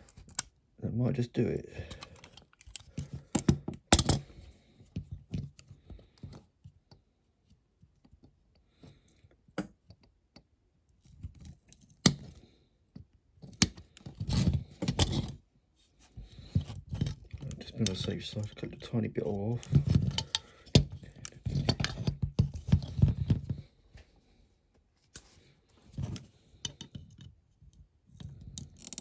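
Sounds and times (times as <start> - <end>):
toy car handling clicks and knocks: 28.2 - 29.0.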